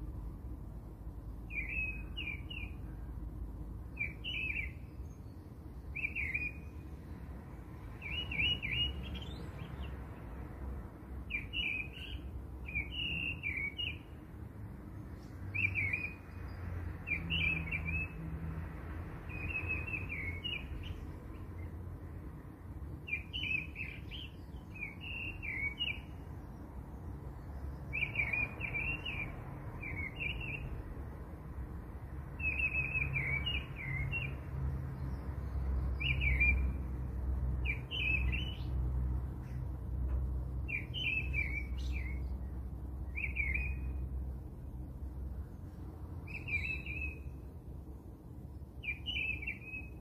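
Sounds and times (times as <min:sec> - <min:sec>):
small bird chirping: 0:03.9 - 0:06.9, 0:07.9 - 0:10.2, 0:11.3 - 0:14.1, 0:19.3 - 0:21.7, 0:23.0 - 0:26.6, 0:35.0 - 0:36.8, 0:37.6 - 0:38.8, 0:40.6 - 0:42.5, 0:43.1 - 0:44.0, 0:46.2 - 0:47.4, 0:48.8 - 0:50.0.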